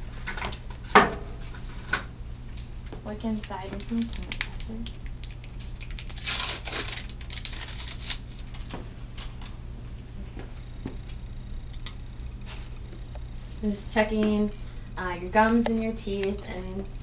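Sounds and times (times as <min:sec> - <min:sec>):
paper wrapper tearing: 0:03.8 - 0:08.7.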